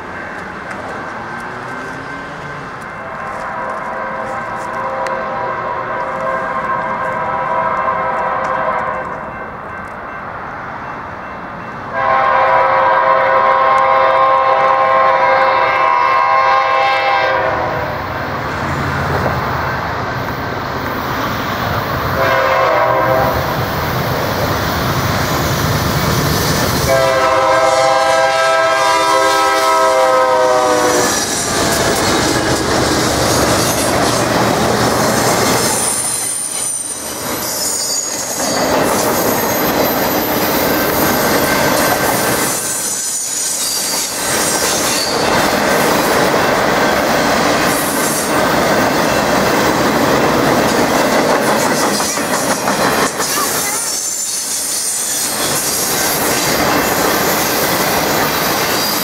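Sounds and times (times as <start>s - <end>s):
train cars rumbling on rails: 0.0s - 59.0s
locomotive horn blasts: 3.2s - 9.2s, 11.9s - 17.9s, 22.1s - 23.5s, 26.8s - 31.3s
wheel squeal: 35.7s - 41.5s, 42.5s - 45.3s.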